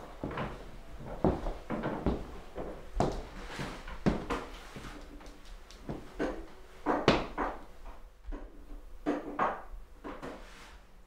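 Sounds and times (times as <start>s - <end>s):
knocks and clatter in kitchen: 3.9s - 10.4s.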